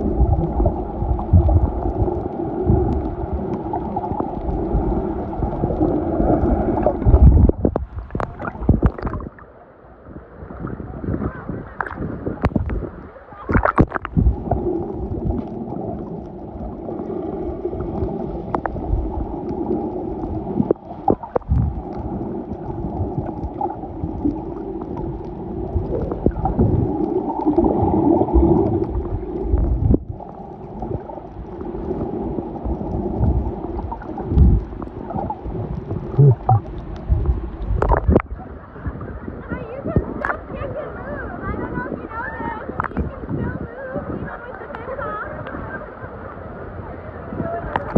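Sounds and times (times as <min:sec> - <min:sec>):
bubbling: 0:00.0 - 0:09.5, 0:11.7 - 0:39.0, 0:42.1 - 0:43.5, 0:47.7 - 0:47.9
underwater churning water: 0:00.0 - 0:47.9.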